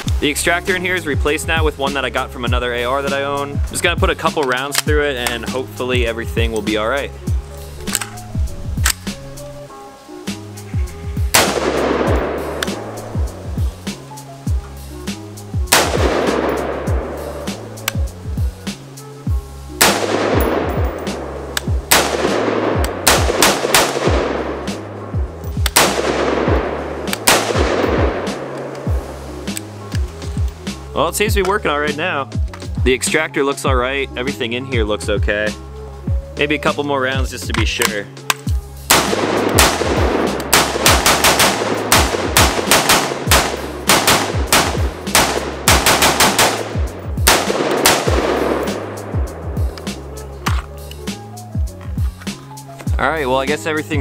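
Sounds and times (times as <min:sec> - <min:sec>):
rapid gunshots: 0:11.3 - 0:12.9, 0:15.7 - 0:17.0, 0:19.8 - 0:20.8, 0:21.9 - 0:24.8, 0:25.7 - 0:28.6, 0:38.9 - 0:49.2
pistol shots echoing: 0:11.3 - 0:13.2, 0:15.7 - 0:17.6, 0:19.8 - 0:25.1, 0:25.7 - 0:28.8, 0:38.9 - 0:49.3.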